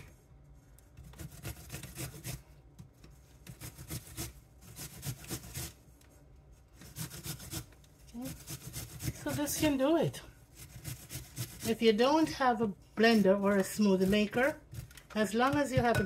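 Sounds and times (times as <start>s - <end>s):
apple rasping on metal grater: 1.0s - 2.4s, 3.4s - 5.8s, 6.8s - 12.4s, 13.0s - 16.0s.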